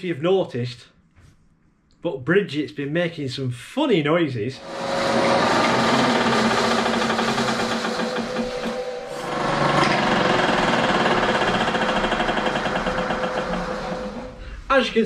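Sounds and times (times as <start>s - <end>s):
milling machine running: 4.6s - 14.4s.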